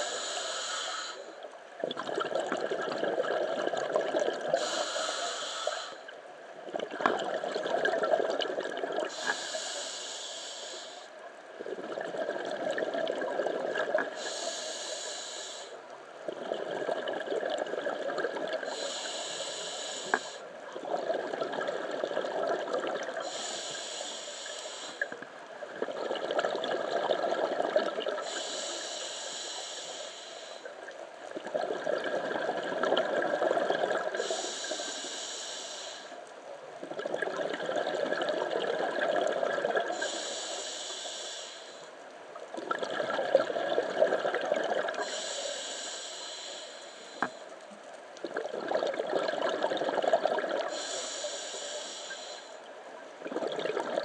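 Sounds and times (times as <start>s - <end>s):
regulator inhale hiss: 0.0s - 1.5s, 4.5s - 6.2s, 9.0s - 11.2s, 14.0s - 16.0s, 18.4s - 20.6s, 23.1s - 25.2s, 28.2s - 30.9s, 34.0s - 36.3s, 39.8s - 42.0s, 44.9s - 47.7s, 50.6s - 52.7s
exhaled bubbles underwater: 1.8s - 4.8s, 6.6s - 9.2s, 11.5s - 14.4s, 16.2s - 18.9s, 20.7s - 23.5s, 25.0s - 28.6s, 30.8s - 34.9s, 36.8s - 40.4s, 42.4s - 45.3s, 48.2s - 51.9s, 53.2s - 54.0s.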